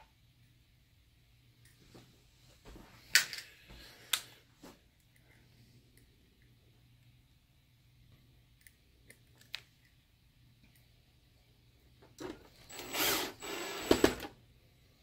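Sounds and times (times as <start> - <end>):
screwdriver turning a screw: 12.6 - 14.2.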